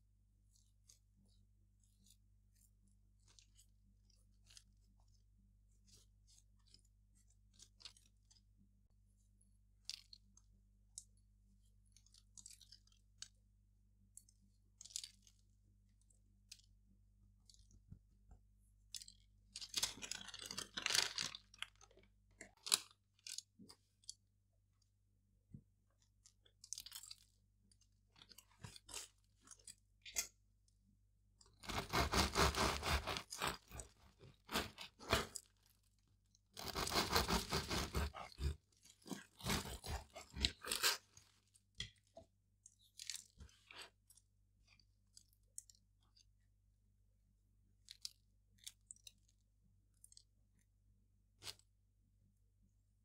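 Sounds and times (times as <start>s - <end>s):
bread knife sawing through crust: 31.6s - 35.4s, 36.6s - 41.0s.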